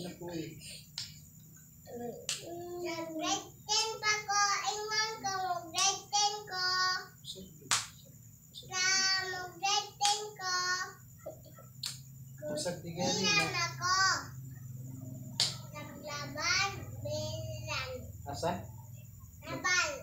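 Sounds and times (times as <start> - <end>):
child singing: 1.9 - 7.5, 8.6 - 11.0, 12.4 - 14.4, 15.5 - 18.2, 19.4 - 20.0.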